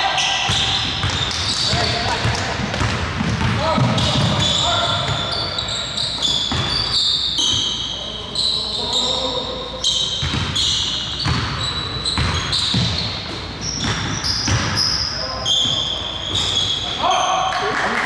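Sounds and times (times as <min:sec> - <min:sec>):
sneakers squeaking: 0:00.0 - 0:17.8
basketball bouncing on wood floor: 0:00.5 - 0:05.3, 0:10.2 - 0:10.5, 0:11.2 - 0:11.6.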